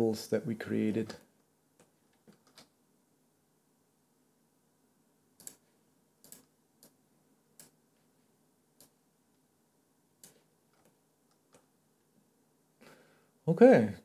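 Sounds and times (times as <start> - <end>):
computer mouse clicks: 1.8 - 2.8, 5.4 - 7.0, 7.6 - 7.8, 8.8 - 9.0, 10.2 - 11.7.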